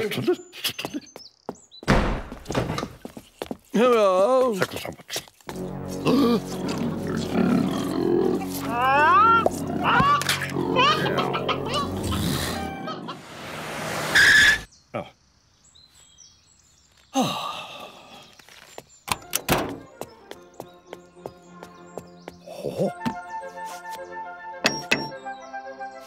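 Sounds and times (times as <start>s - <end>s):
faint birdsong: 0.0s - 2.0s, 14.2s - 26.0s
sharp thunks: 1.8s - 3.0s
background music: 5.5s - 14.0s, 19.1s - 26.0s.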